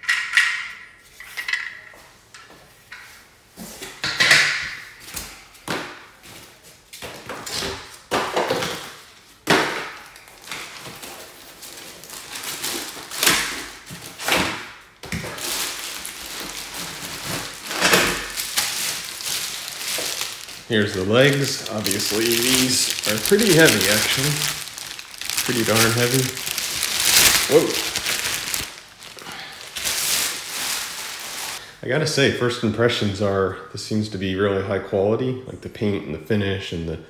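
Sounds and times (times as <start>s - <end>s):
plastic wrap rustling: 8.9s - 31.6s.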